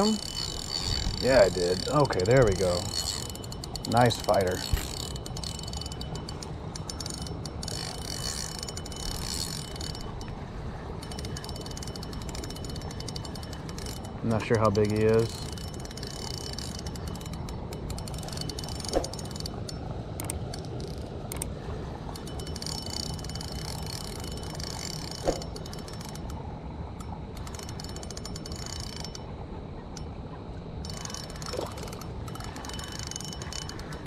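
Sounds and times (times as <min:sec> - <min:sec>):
fishing reel ticking: 0:00.0 - 0:29.3, 0:30.8 - 0:34.0.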